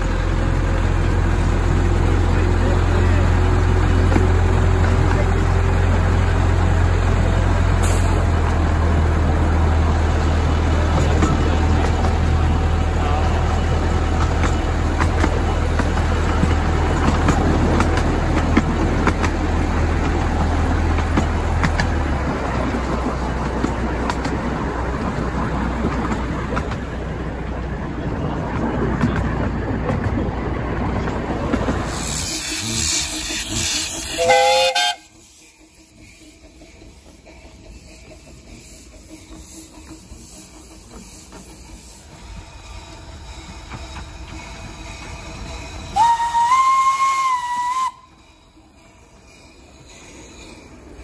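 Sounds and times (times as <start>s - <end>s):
miniature train locomotive drone: 0.0s - 51.0s
wheels rumbling on track: 0.0s - 51.0s
clicks over rail joints: 14.2s - 19.4s, 20.9s - 22.1s, 23.4s - 24.6s
steam whistle blast: 33.5s - 35.2s, 46.0s - 48.2s.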